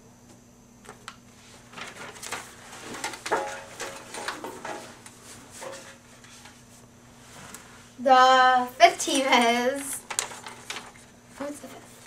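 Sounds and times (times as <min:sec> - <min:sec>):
paper slips rustling in metal tin: 0:09.0 - 0:11.0.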